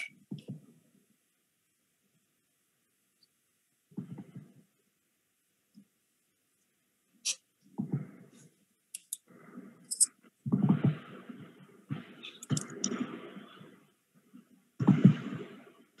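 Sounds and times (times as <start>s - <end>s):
muffled rustling and knocking: 3.9s - 4.6s, 7.7s - 8.5s, 10.2s - 15.7s
sharp clicks: 8.9s - 9.3s.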